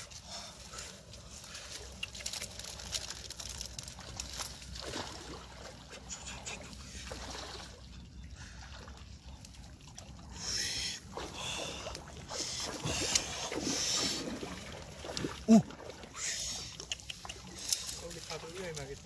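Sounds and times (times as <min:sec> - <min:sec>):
wire-mesh trap rustling in grass: 0:00.9 - 0:05.1.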